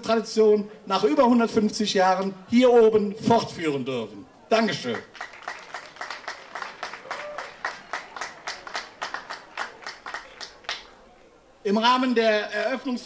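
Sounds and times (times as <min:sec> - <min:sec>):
audience applauding: 0:04.8 - 0:10.9.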